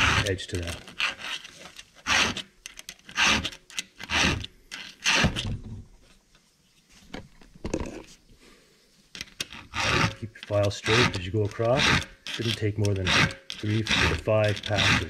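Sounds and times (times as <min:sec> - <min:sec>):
file rasping on chainsaw chain: 0:00.0 - 0:05.4, 0:09.4 - 0:15.0.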